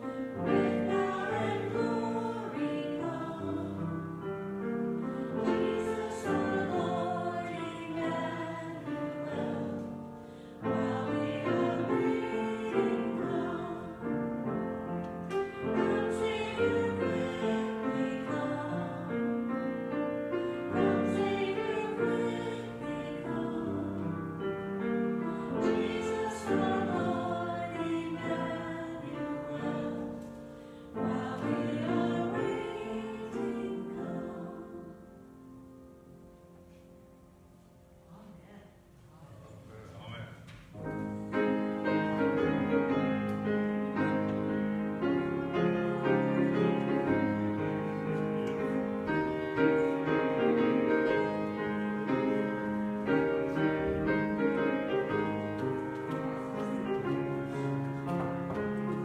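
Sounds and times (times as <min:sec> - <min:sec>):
slow choral music: 0:00.0 - 0:59.0.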